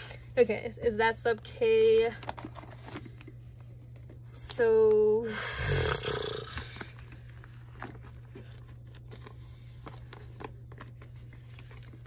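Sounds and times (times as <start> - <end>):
plastic sleeves rustling and clicking: 2.0 - 4.2, 6.7 - 12.0.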